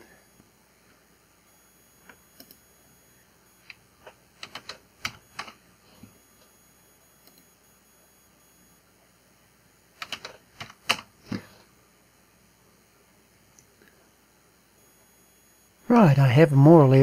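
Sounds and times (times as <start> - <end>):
computer keyboard clicks: 4.4 - 5.6, 10.0 - 11.1.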